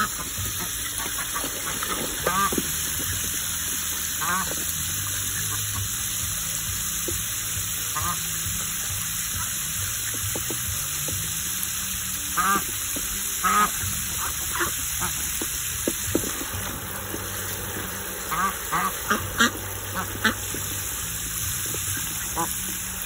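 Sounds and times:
ducks quacking: 0.0s - 6.0s, 7.9s - 8.4s, 12.3s - 12.7s, 13.3s - 15.4s, 16.2s - 23.0s
water spray into plastic tub: 0.0s - 23.0s.

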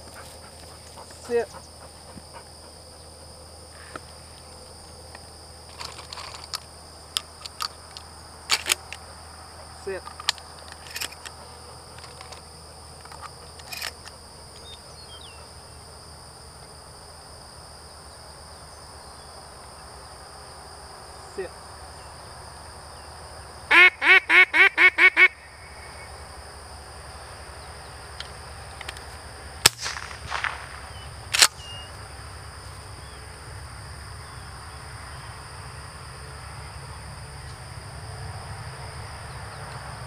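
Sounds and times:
duck call quacks: 23.7s - 25.4s
sharp bangs: 29.6s - 31.7s.

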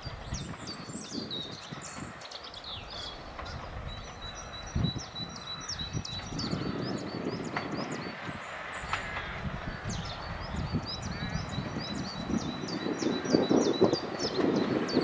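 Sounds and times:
songbirds singing and chirping: 0.0s - 15.0s
wind rumble on microphone: 0.0s - 15.0s.

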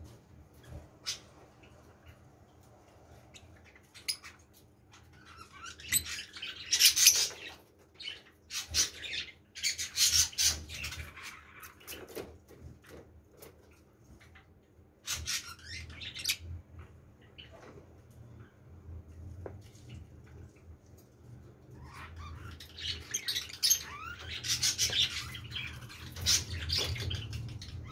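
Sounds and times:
lovebirds chirping: 5.2s - 7.6s.

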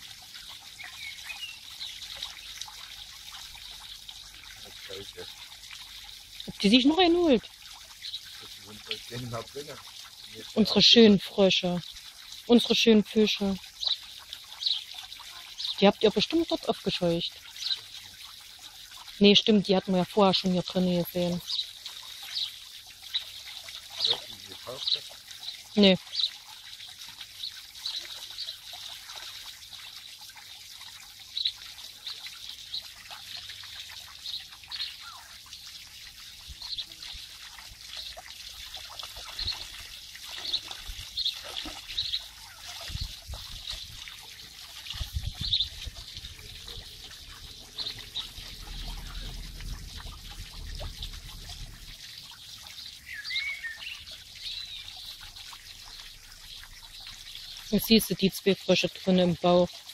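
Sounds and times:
water trickling into a pond: 0.0s - 59.9s
low rumble of wind on microphone: 42.7s - 44.1s, 44.8s - 52.6s
bird call: 53.1s - 54.9s.

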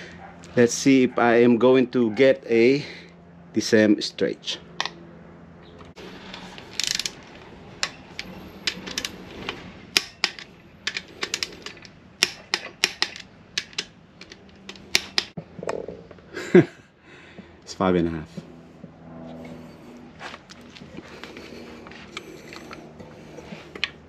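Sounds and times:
ratchet wrench clicks: 6.8s - 7.2s.

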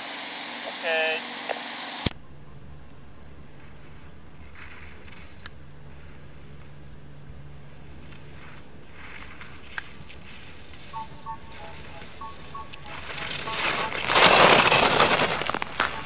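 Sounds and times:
steady low hum: 2.1s - 16.0s
skis scraping on snow: 3.6s - 16.0s
short high beeps: 11.0s - 16.0s.

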